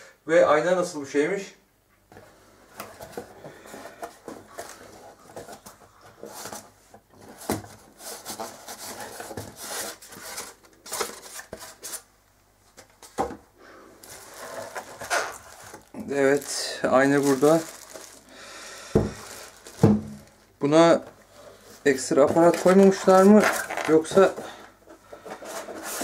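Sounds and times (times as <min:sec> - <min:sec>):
styrofoam scraping: 0:03.0 - 0:12.1, 0:14.0 - 0:20.1, 0:21.4 - 0:26.0
cardboard flaps and paper rustling: 0:14.0 - 0:18.3, 0:18.9 - 0:20.4, 0:21.8 - 0:26.0.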